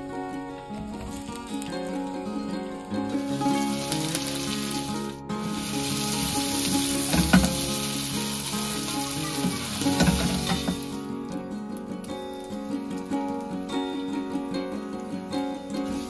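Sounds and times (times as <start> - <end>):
vegetables sizzling in hot oil: 0.7 - 11.3, 15.8 - 16.0.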